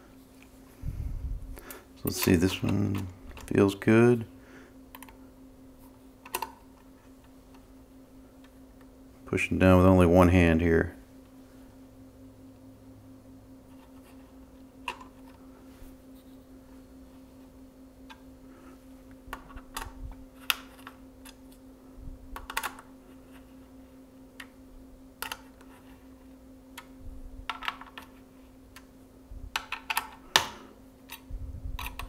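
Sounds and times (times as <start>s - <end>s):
faint steady hum: 0.0s - 32.0s.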